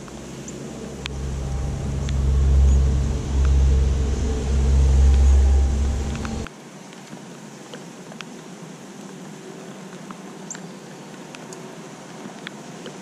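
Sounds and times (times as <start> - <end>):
vehicle engine rumble: 0.0 - 6.5.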